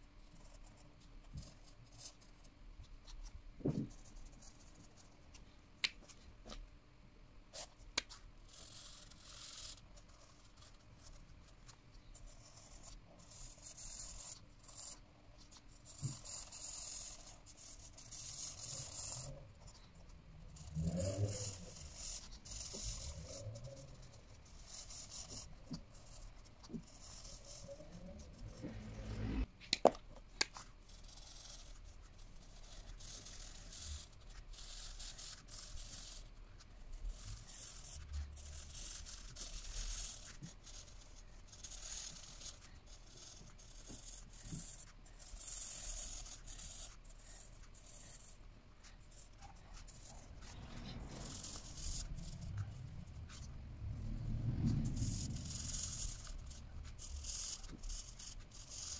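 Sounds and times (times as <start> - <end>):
marker scratching on paper: 0.2 - 6.6, 7.5 - 29.5, 30.4 - 53.6, 54.5 - 58.9
marker cap clicks: 29.7 - 30.5.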